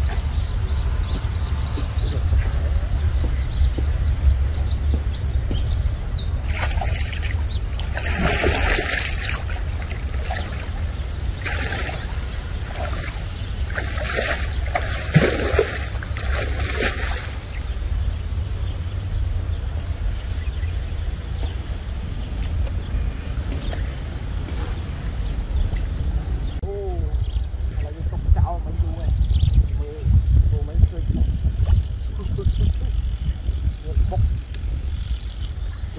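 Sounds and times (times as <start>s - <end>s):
wind rumble on microphone: 0.0s - 35.9s
water sloshing and splashing: 6.5s - 17.6s.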